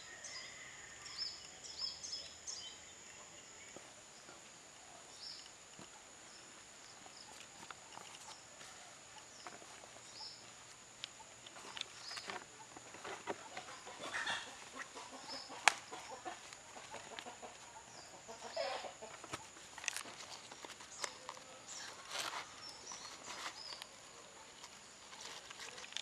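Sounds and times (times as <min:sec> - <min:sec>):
leaf crinkling and rustling: 0:05.4 - 0:17.7, 0:18.3 - 0:26.0.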